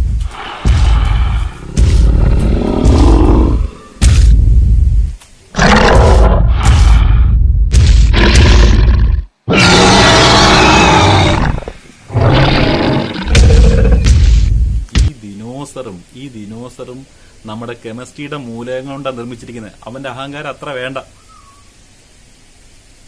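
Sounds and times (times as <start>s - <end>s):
dinosaur roars and growls: 0.5s - 4.0s, 8.1s - 14.1s.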